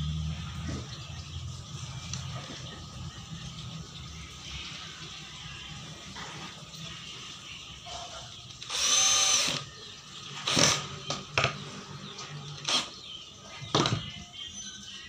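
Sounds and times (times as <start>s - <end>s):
cordless drill motor whirring: 8.6s - 9.7s, 10.4s - 10.9s, 12.6s - 12.9s.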